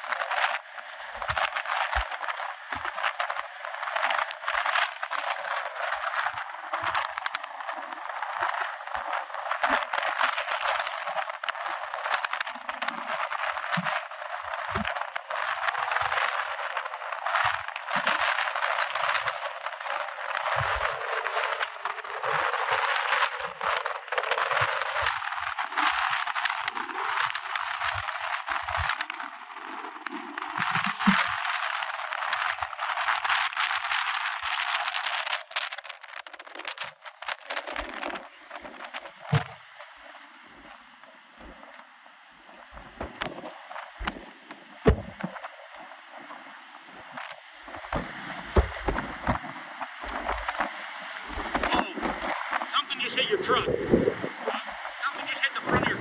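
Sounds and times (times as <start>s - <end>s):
wind and heavy rain: 0.0s - 56.0s
wind gusts hitting microphone: 47.7s - 56.0s.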